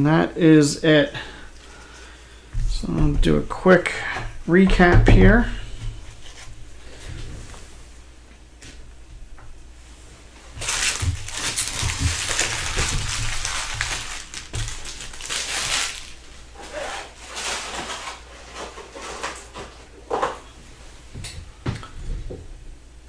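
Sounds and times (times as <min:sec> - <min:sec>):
foil wrappers crinkling: 0:10.5 - 0:19.8.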